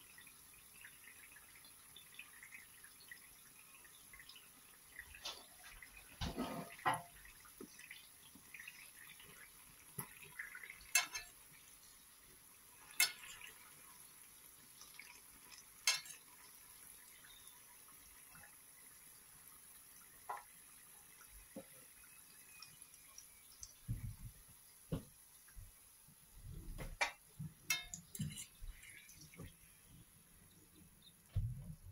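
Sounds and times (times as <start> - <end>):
food sizzling in hot oil: 0.0 - 23.9, 27.0 - 30.0
spoon clinking against pan: 10.9 - 11.4, 12.9 - 13.4, 15.8 - 16.2, 27.0 - 28.8.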